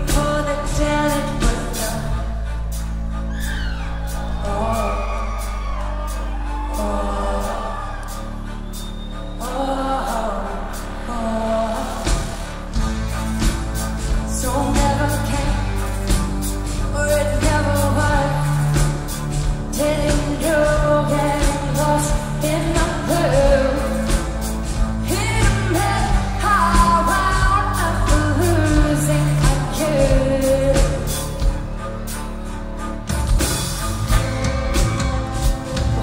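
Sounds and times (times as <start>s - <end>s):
woman singing into microphone: 0.0s - 2.5s, 4.4s - 8.4s, 9.4s - 12.5s, 14.3s - 24.4s, 25.0s - 31.6s
bass notes: 0.0s - 36.0s
steady drum beat: 11.8s - 32.2s, 33.1s - 36.0s.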